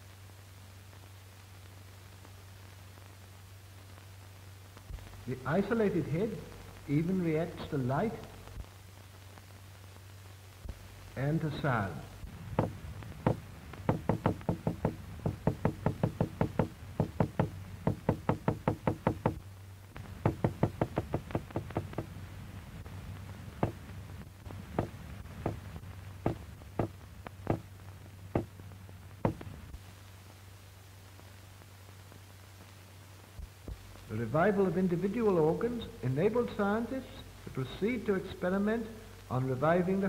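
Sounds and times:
low film soundtrack hum: 0.4s - 40.0s
hammer striking hard surface: 12.6s - 19.4s, 20.2s - 22.1s, 26.3s - 26.9s.

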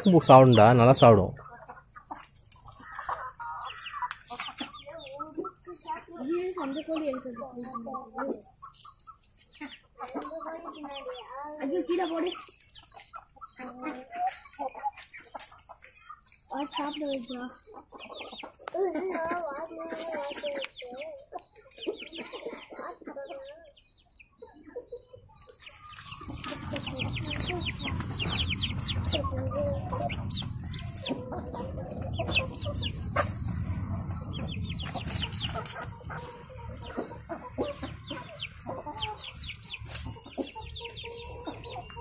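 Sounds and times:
young chickens clucking: 0.0s - 42.0s
low rumble: 26.9s - 38.1s.

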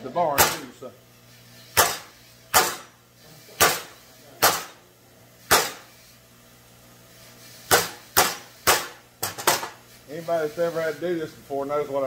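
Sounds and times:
hammer striking metal rod: 0.4s - 0.7s, 1.8s - 2.9s, 3.6s - 4.8s, 5.5s - 5.9s, 7.7s - 9.8s.

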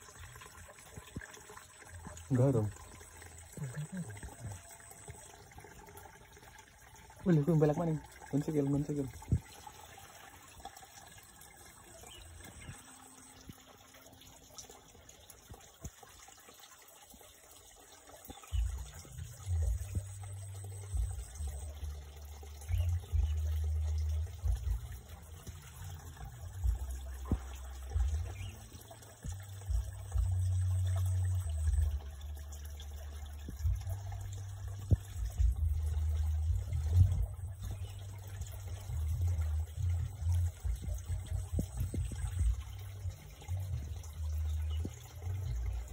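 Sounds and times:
low rumbling microphone buffets: 33.5s - 45.9s.

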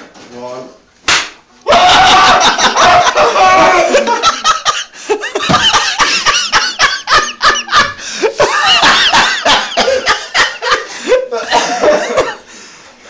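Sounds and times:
people laughing loudly: 1.7s - 12.5s.

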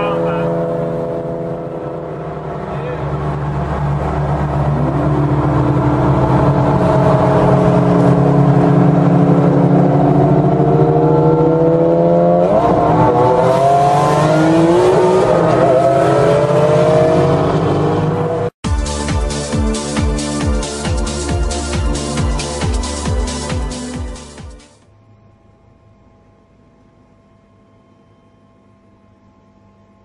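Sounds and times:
sports car engines accelerating: 0.0s - 18.6s.

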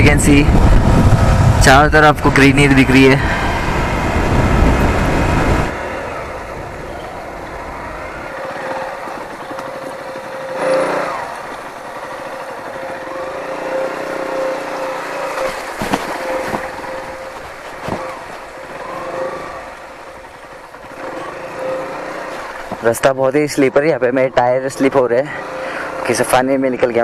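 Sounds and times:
motorcycle engine revving: 0.0s - 23.2s, 24.9s - 26.7s
knocks over bumps: 15.4s - 19.3s.

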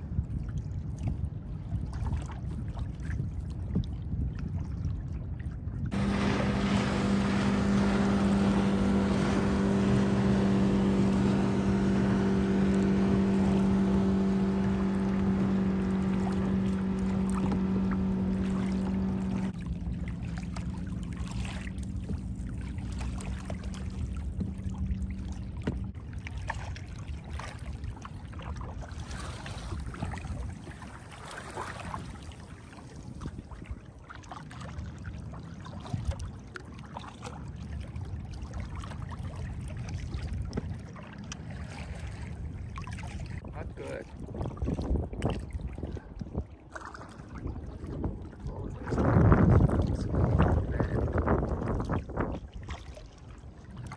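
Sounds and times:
water splashing and lapping: 0.0s - 53.9s
motor humming: 6.0s - 25.3s.

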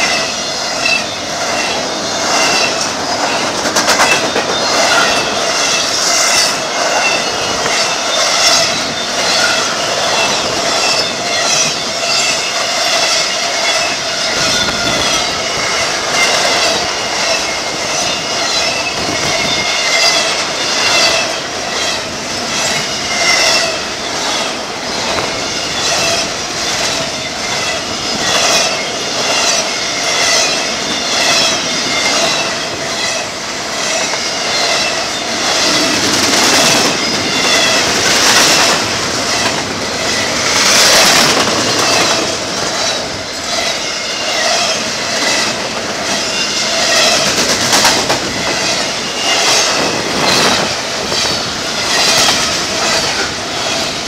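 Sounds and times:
metallic wheel squeal: 0.0s - 54.0s
train wheels clattering over rail joints: 0.0s - 54.0s.

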